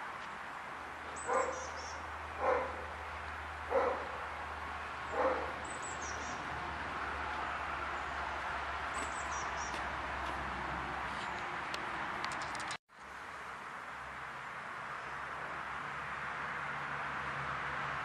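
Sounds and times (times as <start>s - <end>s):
dog barking: 1.2s - 1.8s, 2.4s - 3.0s, 3.7s - 4.2s, 5.1s - 5.6s.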